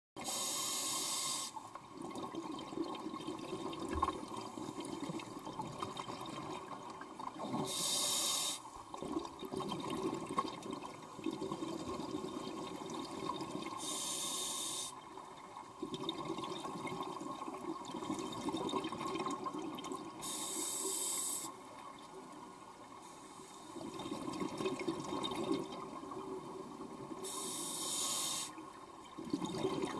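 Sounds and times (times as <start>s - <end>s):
regulator hissing inhalation: 0.2s - 1.6s, 7.7s - 8.7s, 13.8s - 14.9s, 20.2s - 21.5s, 27.3s - 28.6s.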